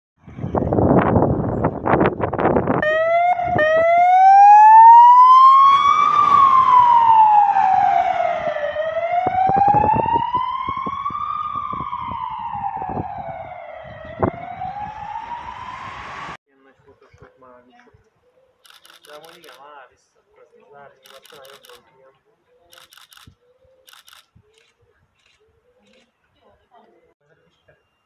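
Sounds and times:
ambulance siren wailing: 2.8s - 16.4s
siren blips: 2.8s - 16.4s.

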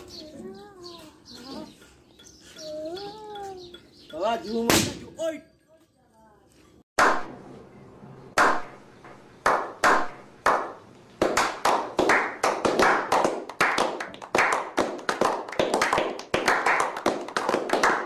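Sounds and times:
group clapping: 7.0s - 7.3s, 8.4s - 8.7s, 9.4s - 18.0s.

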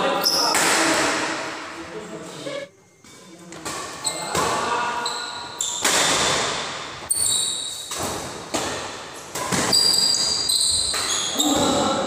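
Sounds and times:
shoes squeaking on court floor: 2.2s - 6.2s, 7.0s - 8.2s, 9.2s - 11.8s.

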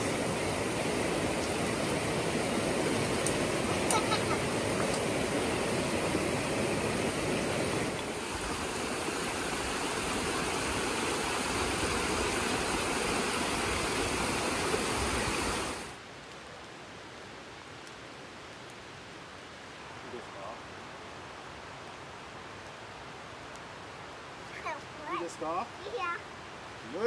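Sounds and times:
water flowing: 0.0s - 16.0s, 23.8s - 27.0s
faint steady hiss: 0.0s - 27.0s.

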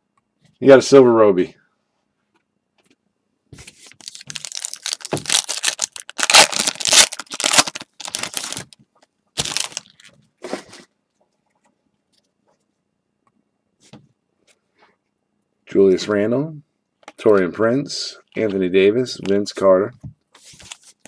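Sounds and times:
foil wrapper tearing and crinkling: 4.0s - 8.8s, 9.4s - 10.1s.

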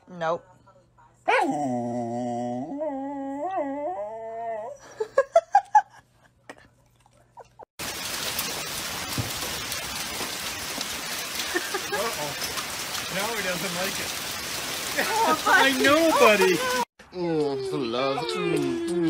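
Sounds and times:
dog howling: 1.3s - 4.8s
steady rain: 7.8s - 16.9s.

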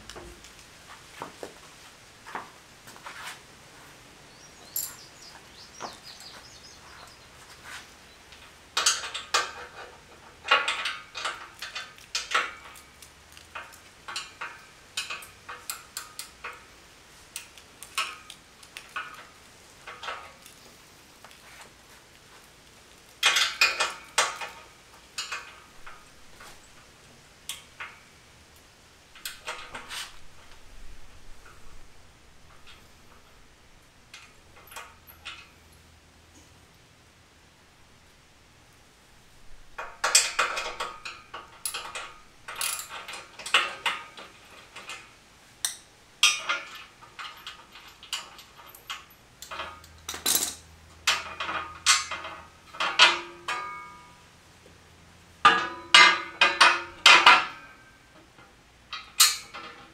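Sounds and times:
metallic clicks of tools and bolts: 4.7s - 5.1s, 8.3s - 16.7s, 17.3s - 20.6s, 23.1s - 26.7s, 27.4s - 31.8s, 34.1s - 35.9s, 39.6s - 54.2s, 55.4s - 59.9s.

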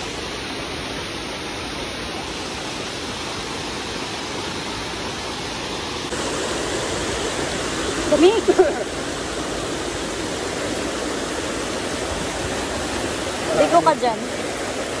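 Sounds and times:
water rushing at waterfall: 0.0s - 15.0s.

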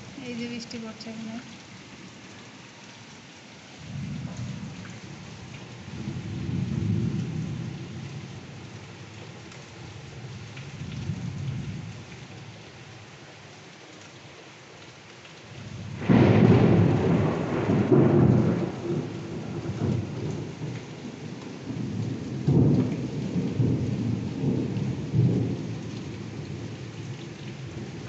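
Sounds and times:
heavy rain: 0.0s - 28.0s
thunder rumbling: 3.8s - 8.4s, 15.7s - 26.7s.

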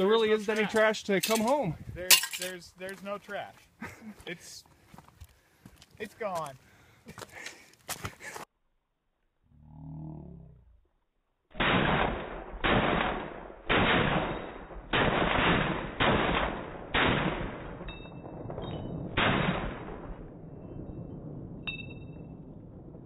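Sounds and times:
rifle shots echoing: 11.6s - 20.5s
short metallic pings: 21.7s - 22.3s.

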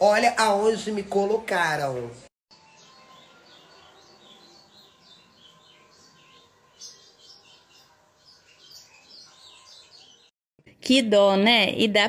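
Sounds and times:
faint high chirps: 2.6s - 10.3s.

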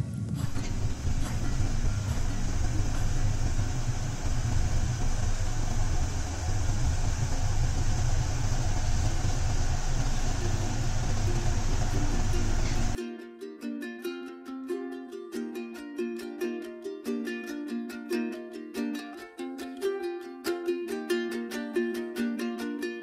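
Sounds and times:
gas burner rumble: 0.2s - 13.0s
liquid bubbling in saucepan: 0.4s - 13.0s.

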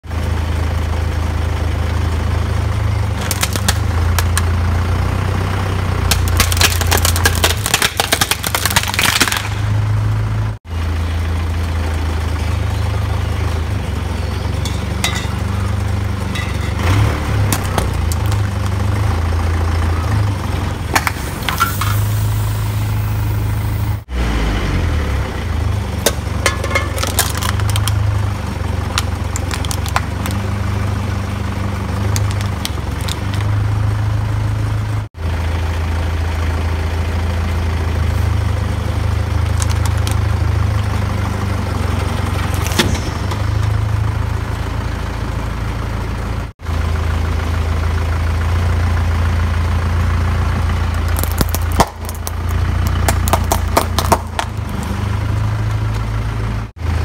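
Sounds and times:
vehicle engine idling: 0.0s - 57.0s
plastic toy cracking and crunching: 3.2s - 4.4s, 6.1s - 9.6s, 26.9s - 28.0s, 29.0s - 30.4s, 32.1s - 33.5s, 39.5s - 40.2s, 51.0s - 54.6s
tyre crushing objects: 26.0s - 28.0s, 28.9s - 30.5s, 32.0s - 33.5s, 51.0s - 54.9s.

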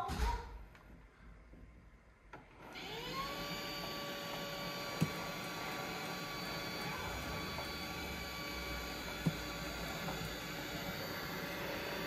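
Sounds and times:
robot vacuum motor whining: 2.6s - 12.0s.

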